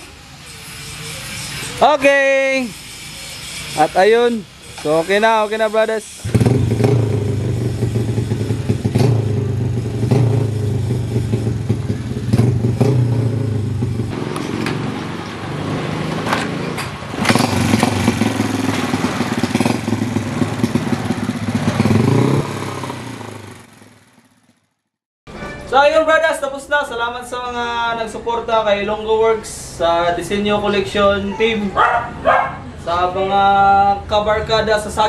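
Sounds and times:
motorcycle engine revving: 3.0s - 24.9s.

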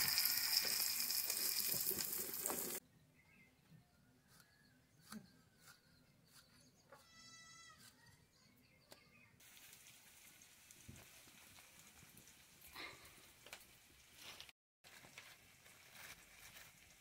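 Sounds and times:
goat bleating: 7.0s - 7.8s.

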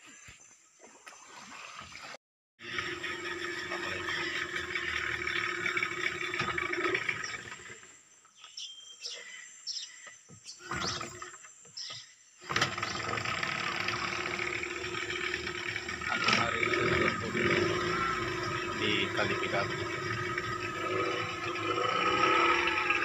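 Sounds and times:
outboard motor running: 2.6s - 8.0s, 12.4s - 23.0s
bird chirps: 8.2s - 13.2s.

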